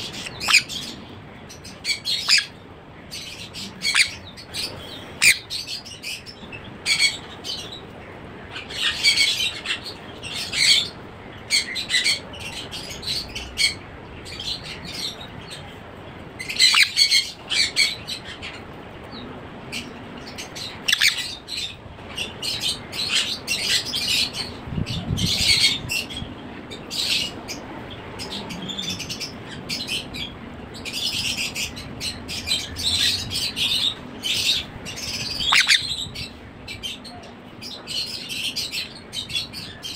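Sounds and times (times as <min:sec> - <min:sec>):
parrot chick squawking: 0:00.0 - 0:00.9, 0:03.6 - 0:05.5, 0:34.3 - 0:36.2.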